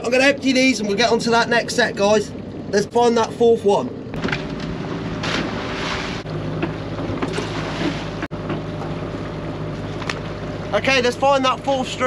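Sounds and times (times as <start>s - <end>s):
boat engine idling: 0.0s - 12.0s
water rushing and splashing: 4.1s - 8.3s.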